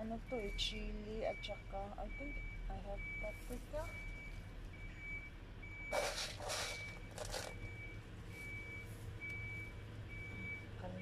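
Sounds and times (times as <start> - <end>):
low steady hum: 0.0 - 11.0
vehicle reversing alarm beeping: 0.0 - 11.0
rustling of potted plants: 5.9 - 7.6.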